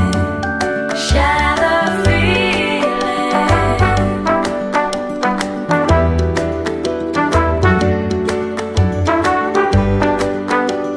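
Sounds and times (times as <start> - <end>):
instrumental music with beat: 0.0 - 10.9.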